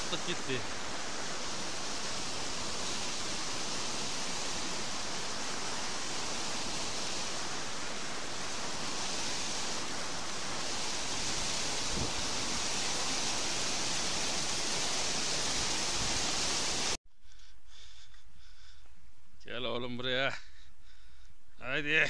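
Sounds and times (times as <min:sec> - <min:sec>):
white water rushing: 0:00.0 - 0:17.0.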